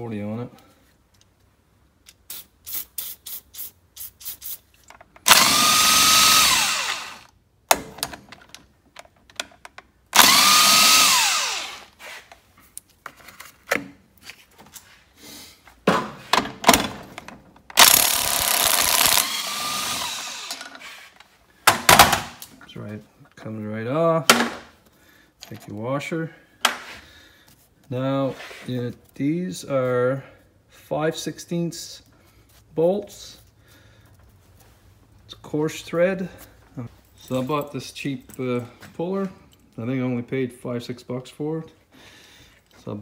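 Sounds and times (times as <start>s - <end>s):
power tool motor whine: 5.3s - 7.3s, 10.2s - 11.9s, 17.8s - 20.7s.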